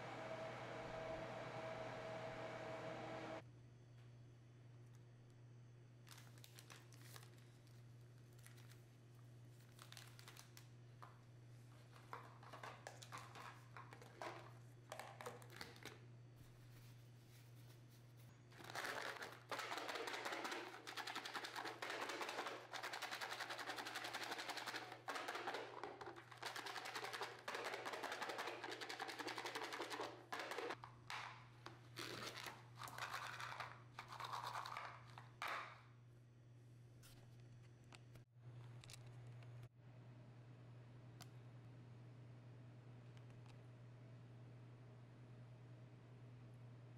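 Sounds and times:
low hum: 0.0 - 3.4
chickpeas rattling in plastic tub: 18.6 - 31.3, 32.0 - 35.2.

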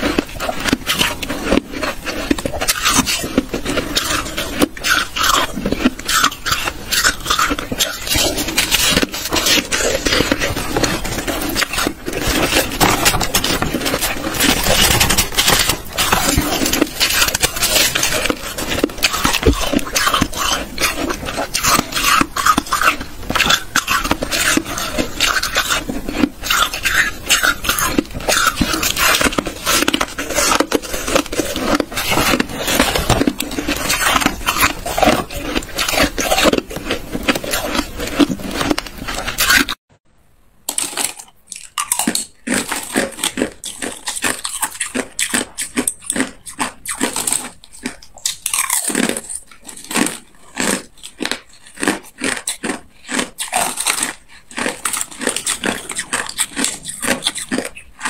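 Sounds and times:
biting and crunching ice: 0.0 - 39.8, 40.7 - 58.0
gloved hands scraping ice: 0.0 - 39.8.

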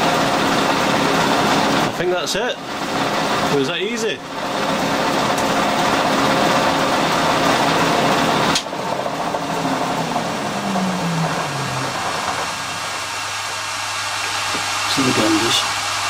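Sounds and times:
metal lathe running: 0.0 - 16.0
lathe winding down hum: 4.2 - 16.0.

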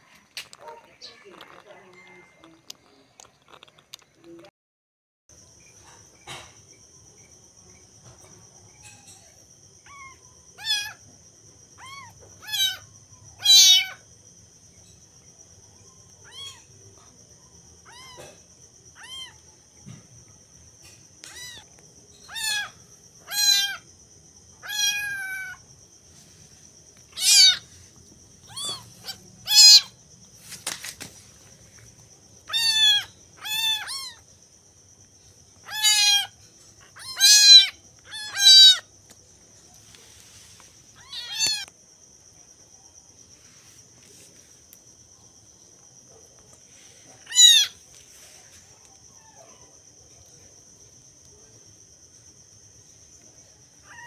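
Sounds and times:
kittens meowing: 8.8 - 11.0, 11.8 - 14.0, 16.2 - 16.7, 17.8 - 19.4, 21.2 - 21.7, 22.3 - 23.8, 24.6 - 25.6, 27.1 - 27.7, 28.4 - 30.0, 32.4 - 34.2, 35.6 - 38.8, 41.0 - 41.7, 47.2 - 47.8.

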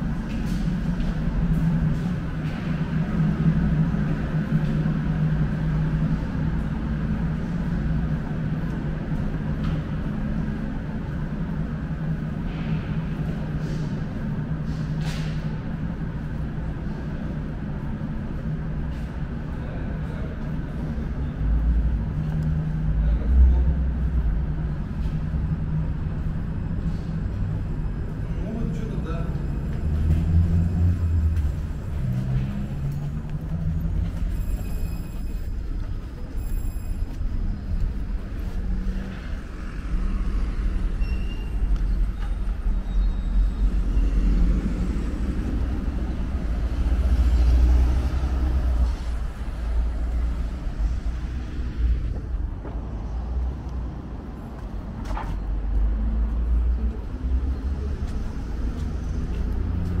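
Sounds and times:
road vehicles passing: 0.0 - 60.0.

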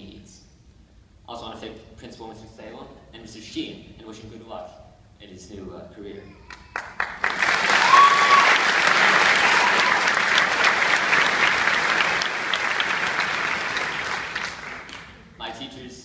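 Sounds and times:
audience applauding: 6.5 - 15.2.

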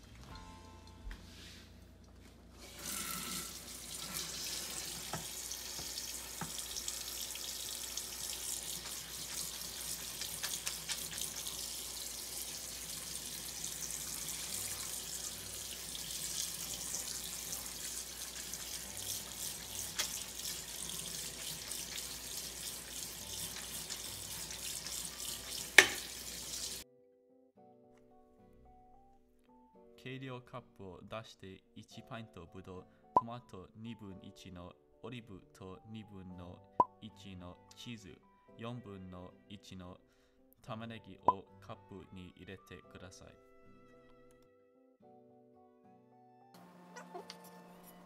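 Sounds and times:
faucet water spraying: 2.6 - 26.8.

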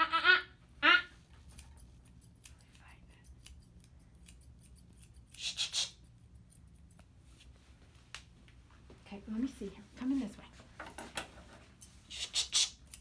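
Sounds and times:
shears snipping hair: 1.1 - 7.6, 11.1 - 13.0.

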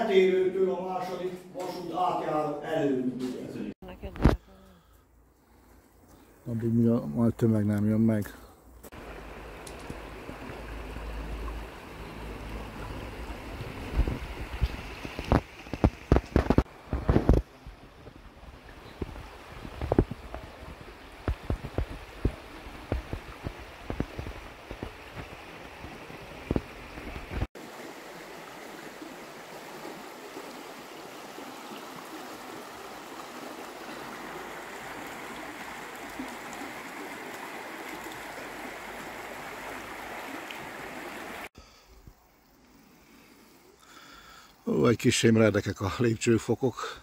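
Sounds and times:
river rushing over stones: 8.9 - 41.5
wind buffeting microphone: 12.9 - 27.5.

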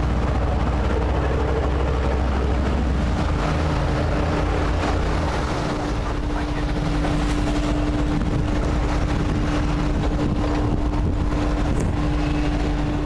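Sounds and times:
diesel engines running: 0.0 - 13.0
wind buffeting microphone: 0.0 - 13.0.

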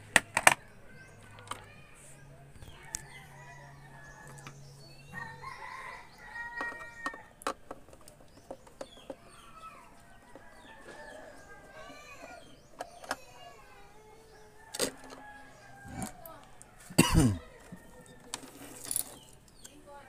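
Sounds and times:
chickens clucking: 0.0 - 18.6
rooster crowing: 2.6 - 7.4, 10.0 - 12.3, 14.5 - 18.3.

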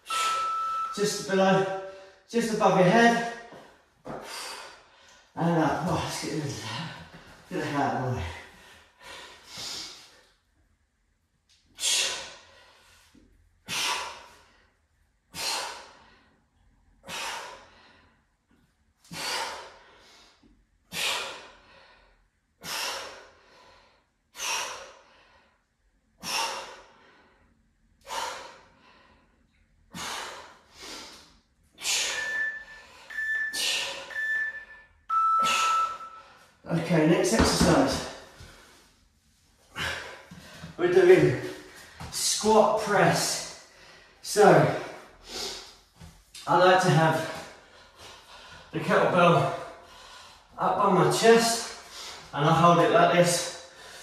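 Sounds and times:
timer beeps: 0.0 - 1.0, 32.0 - 36.4
man breathing hard: 3.4 - 5.3, 8.2 - 10.3, 11.7 - 18.4, 19.0 - 34.7, 37.4 - 40.8, 43.4 - 46.0, 47.2 - 48.8, 49.6 - 50.6, 51.5 - 52.3, 53.5 - 54.0.

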